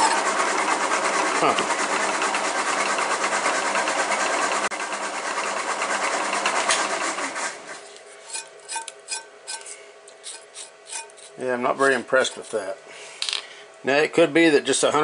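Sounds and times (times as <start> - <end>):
drill bit cutting metal: 0.0 - 0.4
spindle running: 0.0 - 12.7.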